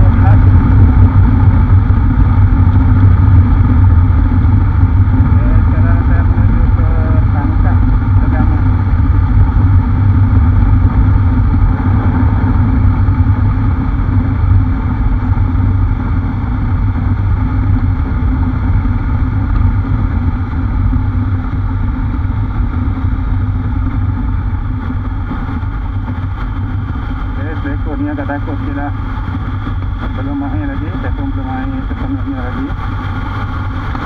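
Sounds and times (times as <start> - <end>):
motorcycle engine drone: 0.0 - 34.0
rushing wind: 0.0 - 34.0.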